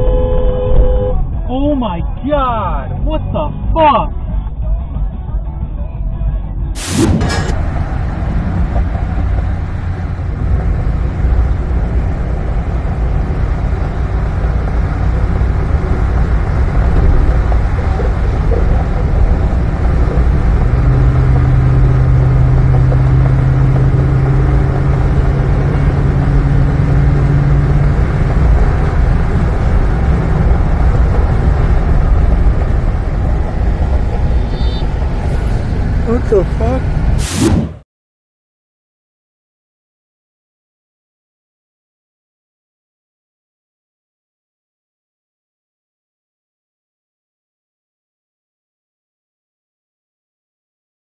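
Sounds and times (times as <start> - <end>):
road and engine rumble in car: 0.0 - 37.6.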